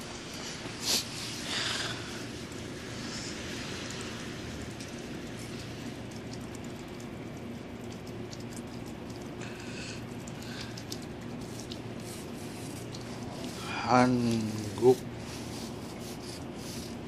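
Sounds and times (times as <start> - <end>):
outdoor background hiss: 0.0 - 17.0
faint scattered ticks: 1.7 - 13.8.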